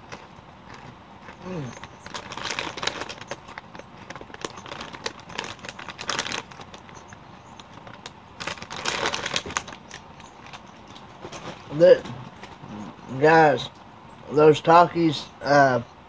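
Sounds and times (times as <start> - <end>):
plastic chip bag crinkling: 0.0 - 10.7.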